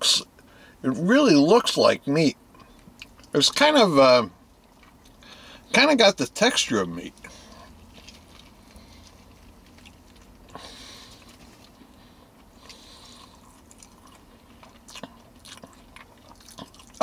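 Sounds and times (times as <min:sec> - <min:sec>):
low steady hum: 0:00.0 - 0:17.0
chewing food: 0:02.6 - 0:03.4, 0:04.6 - 0:05.3, 0:07.1 - 0:17.0.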